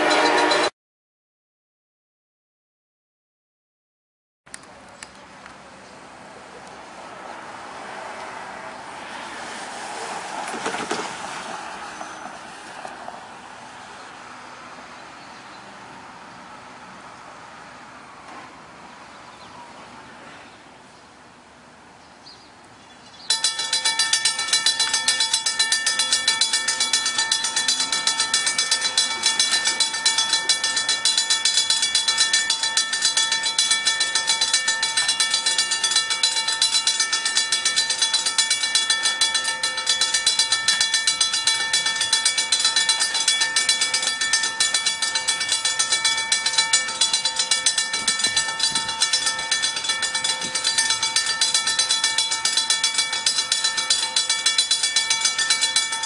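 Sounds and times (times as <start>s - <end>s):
crossing bell ringing rapidly: 0.0s - 0.7s, 10.5s - 12.6s, 23.3s - 56.0s.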